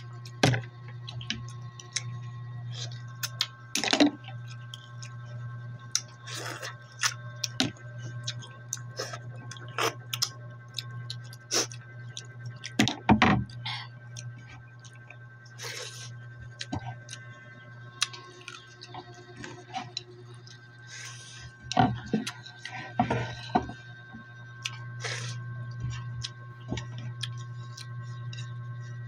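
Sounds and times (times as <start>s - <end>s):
steady low hum: 0.0s - 29.0s
chewing and mouth sounds: 1.0s - 3.6s, 4.2s - 12.8s, 13.6s - 21.3s, 24.6s - 28.6s
sucking sounds: 24.6s - 29.0s.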